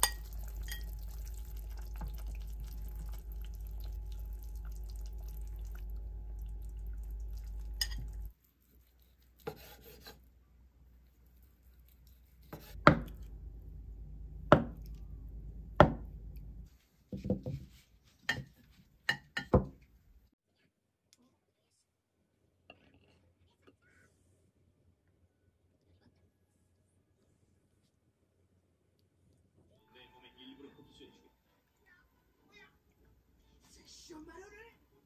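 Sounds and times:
steady low hum: 0.0 - 8.3, 12.8 - 16.7.

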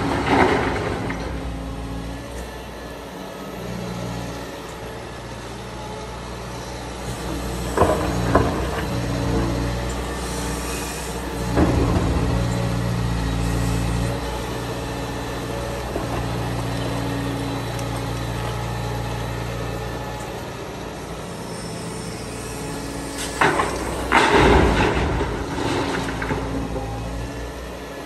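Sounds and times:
loud crashing clatters: 0.0 - 1.6, 23.4 - 26.8
heavy diesel engine running: 0.0 - 28.0.

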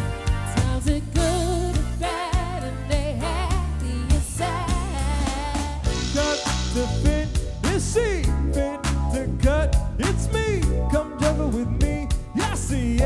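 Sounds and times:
live band playing: 0.0 - 13.0
woman singing with vibrato: 0.6 - 6.4.

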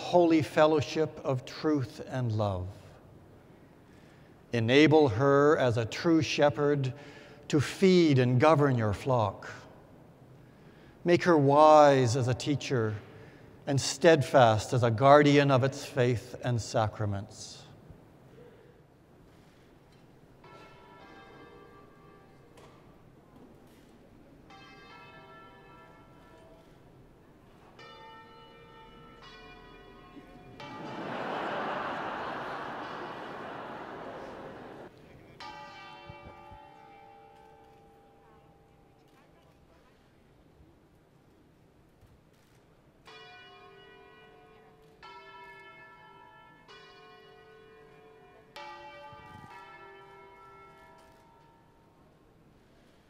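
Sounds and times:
bells ringing chords: 27.8 - 37.5
applause: 30.8 - 34.9.

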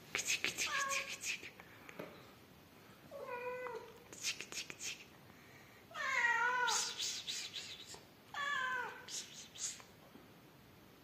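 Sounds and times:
cat meowing: 5.9 - 6.9, 8.3 - 9.1.

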